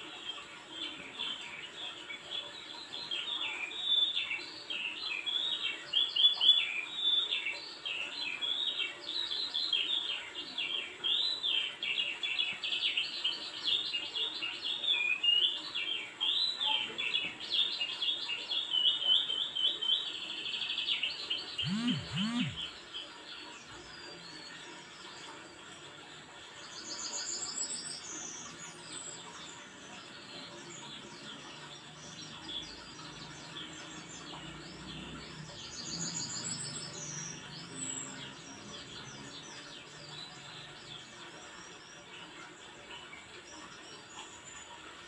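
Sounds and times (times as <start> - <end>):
songbird singing: 0.0 - 45.0
short low sounds: 21.6 - 22.7.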